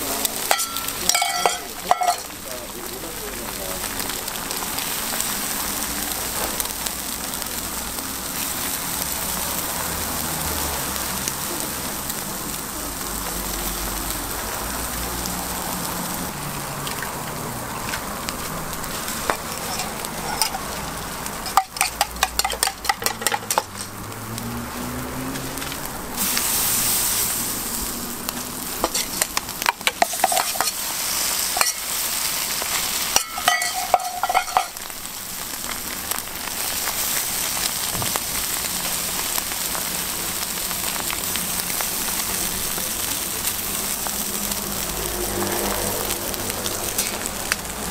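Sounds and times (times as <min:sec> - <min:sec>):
patties sizzling on a griddle: 0:00.0 - 0:47.9
metal spoon clattering in cup: 0:21.5 - 0:23.9.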